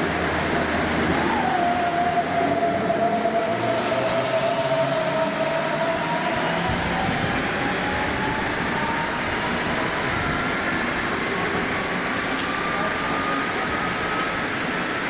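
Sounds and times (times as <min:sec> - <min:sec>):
heavy rain: 0:00.0 - 0:15.0
train traction motors whining: 0:00.0 - 0:15.0.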